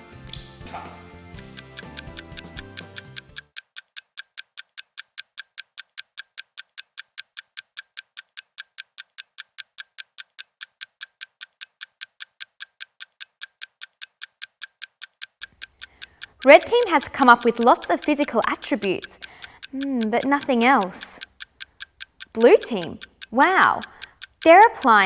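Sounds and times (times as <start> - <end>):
background music: 0.0 - 3.5
countdown timer ticking: 1.2 - 25.0.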